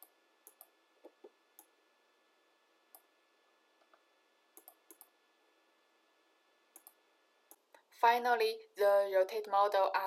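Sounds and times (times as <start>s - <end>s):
computer mouse clicks: 0.0s - 1.7s, 4.6s - 5.2s, 6.7s - 7.8s
quiet background hum: 0.0s - 10.0s.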